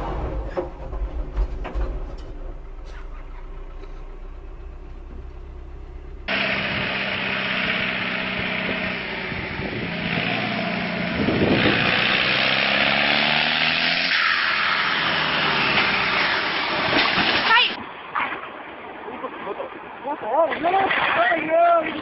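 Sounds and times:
tractor diesel engine running hard: 0.0s - 14.1s.

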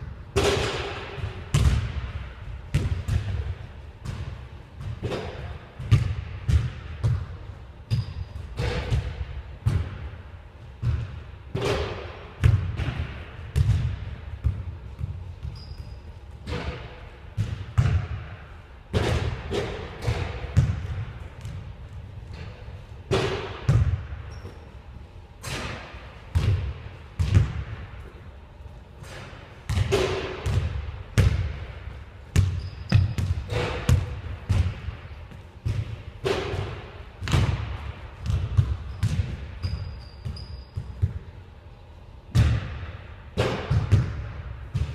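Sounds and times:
basketball bouncing on hardwood floor: 5.8s - 7.3s, 13.6s - 15.8s, 20.0s - 21.6s, 23.1s - 24.6s, 29.7s - 31.5s, 32.3s - 35.0s, 38.2s - 39.4s.

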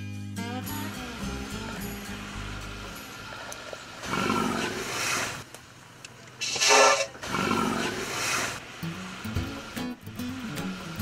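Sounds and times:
elephant roaring: 4.0s - 5.0s, 6.4s - 8.1s
elephant trumpeting: 6.4s - 7.8s.

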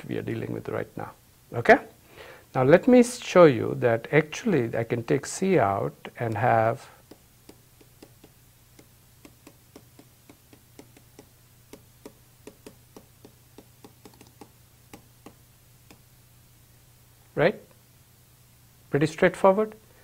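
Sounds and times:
faint steady hum: 0.0s - 20.0s
stylus tapping on screen: 6.2s - 16.1s.

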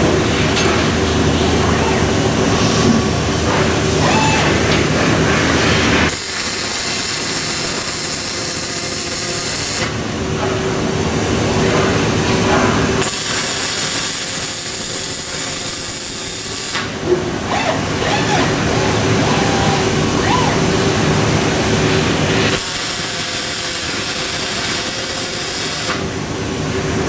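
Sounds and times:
steady machine hum: 0.0s - 27.0s
welding arc hissing and crackling: 5.2s - 10.0s, 13.0s - 17.0s, 21.0s - 26.2s.

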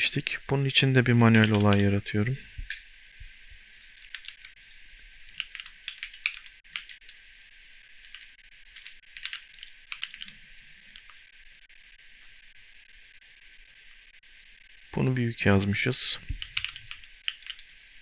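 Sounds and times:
computer keyboard typing: 1.0s - 1.9s, 3.8s - 4.6s, 5.3s - 7.2s, 8.0s - 11.2s, 16.3s - 17.8s.

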